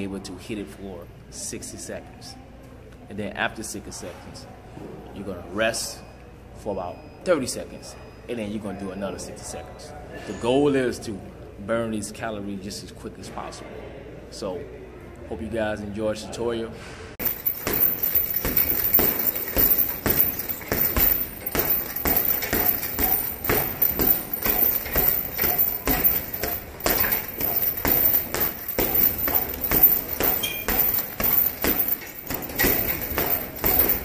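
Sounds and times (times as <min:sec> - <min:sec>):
gloves punching heavy bag: 0:17.2 - 0:34.0.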